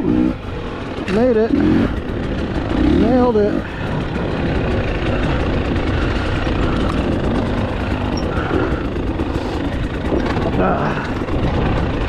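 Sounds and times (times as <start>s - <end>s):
dirt bike engine running: 0.0s - 12.0s
rattle noise: 0.0s - 12.0s
wind noise: 10.0s - 12.0s.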